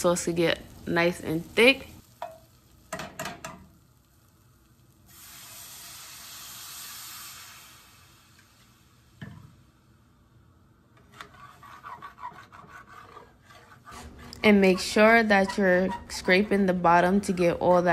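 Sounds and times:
wine sizzling in hot pan: 0.0s - 10.4s
metal spoon clinking on pan: 2.2s - 3.6s.

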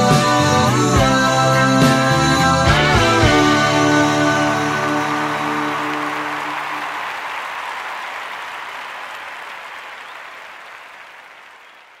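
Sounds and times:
rock music: 0.0s - 6.8s
crowd applause: 2.7s - 12.0s.

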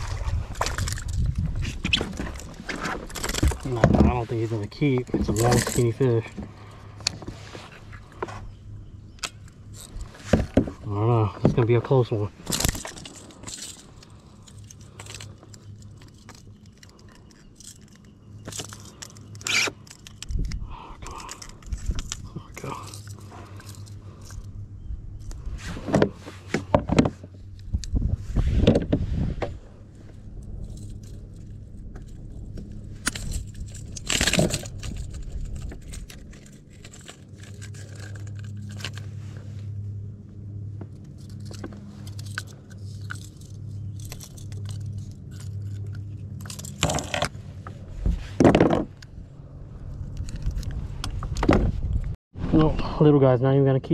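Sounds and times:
low steady hum: 0.0s - 53.9s
metal tackle clicking and jingling: 2.1s - 3.8s, 4.4s - 7.2s, 8.6s - 10.2s, 11.1s - 25.5s, 30.3s - 39.2s, 40.9s - 47.4s.

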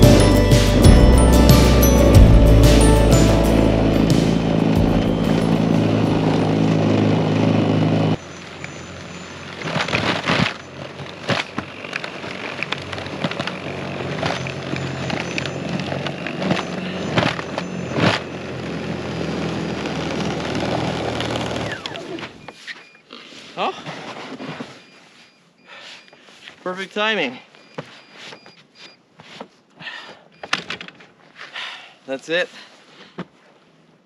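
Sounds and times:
snowblower motor running: 0.0s - 9.8s, 10.6s - 22.0s.

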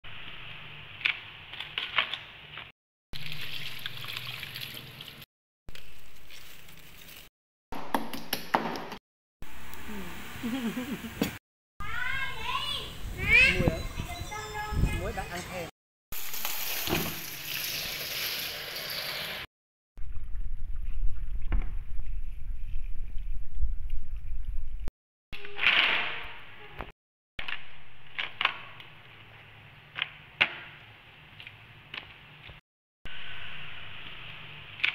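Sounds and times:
tap water running: 3.2s - 5.2s, 16.2s - 19.5s.

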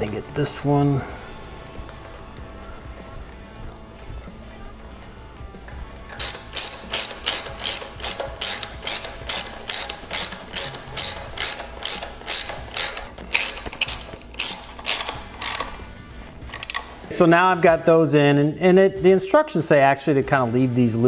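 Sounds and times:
socket ratchet clicking: 6.1s - 17.0s.

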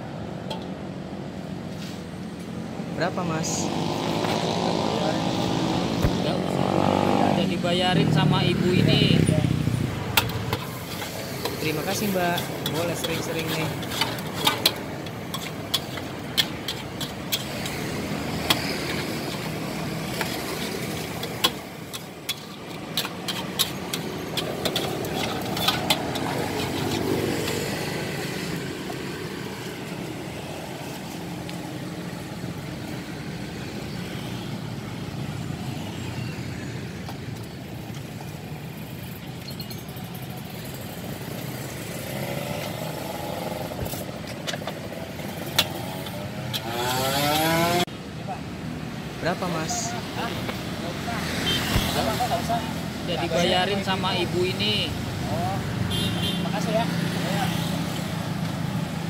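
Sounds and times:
street traffic hum: 0.0s - 59.0s
motorcycles passing: 2.2s - 59.0s
metal spatula scraping a wok: 10.2s - 27.8s.

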